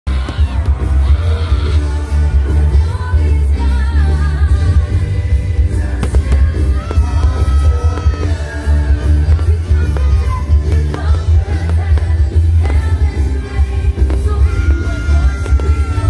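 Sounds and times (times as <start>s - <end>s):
pop music with singing: 0.1s - 16.0s
heavy bass beat: 5.6s - 16.0s.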